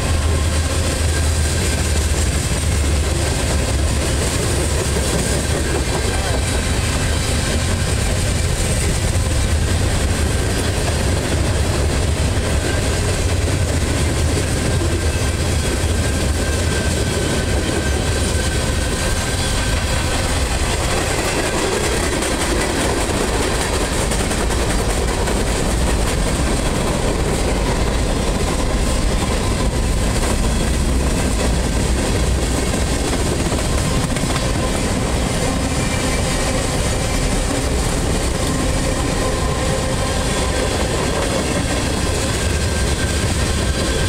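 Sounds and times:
train wheels rumbling on rails: 0.0s - 44.0s.

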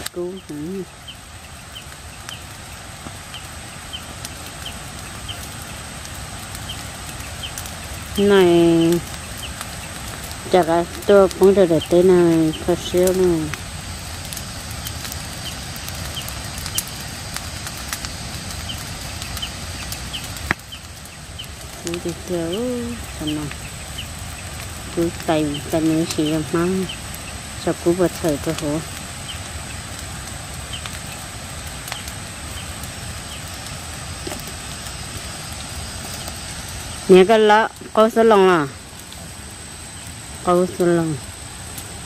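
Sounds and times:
dry vegetation burning crackling: 0.0s - 42.0s
fire pops: 0.0s - 42.0s.

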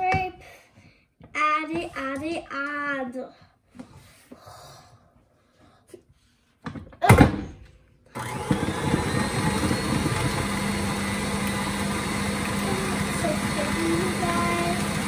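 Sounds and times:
stand mixer motor running: 8.2s - 15.0s.

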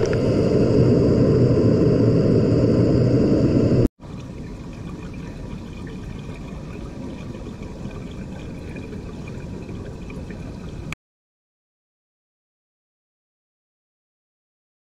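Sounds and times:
water rushing in pool: 4.0s - 11.0s.

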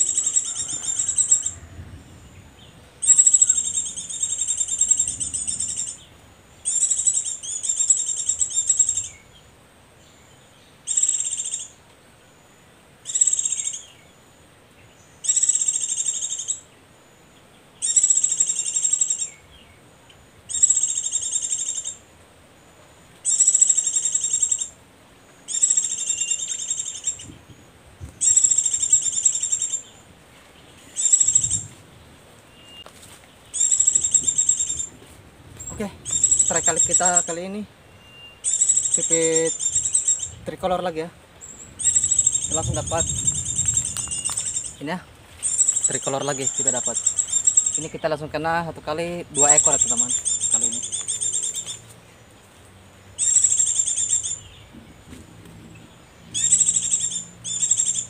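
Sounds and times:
recorded bird twittering: 0.0s - 58.0s.

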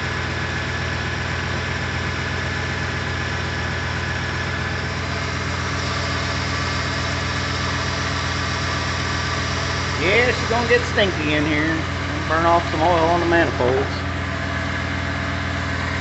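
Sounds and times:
engine idling quietly: 0.0s - 16.0s.

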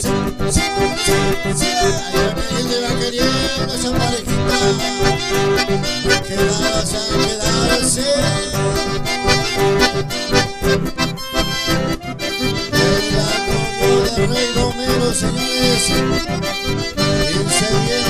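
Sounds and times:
acoustic guitar strumming: 0.0s - 18.0s
button accordions playing: 0.0s - 18.0s
steady low beat: 3.8s - 18.0s.

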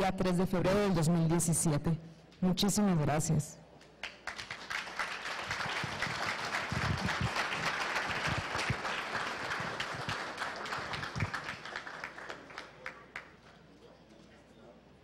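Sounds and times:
audience applauding: 4.0s - 13.4s.

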